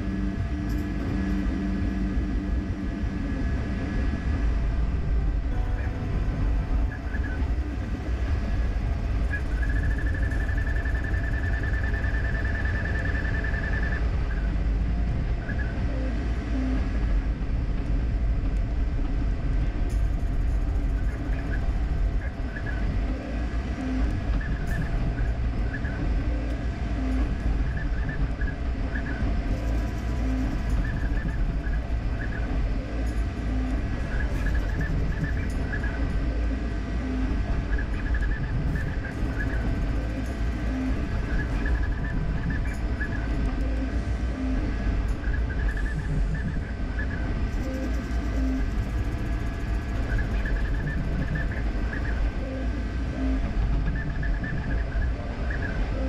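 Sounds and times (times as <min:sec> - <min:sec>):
fan hum and low rumble: 0:00.0 - 0:56.0
stepper motors chirping: 0:05.5 - 0:14.6, 0:19.9 - 0:56.0.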